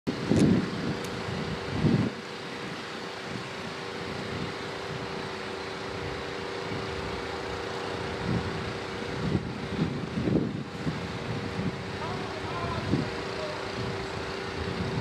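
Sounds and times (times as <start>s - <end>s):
wind buffeting microphone: 0.1s - 15.0s
wind rushing: 8.0s - 15.0s.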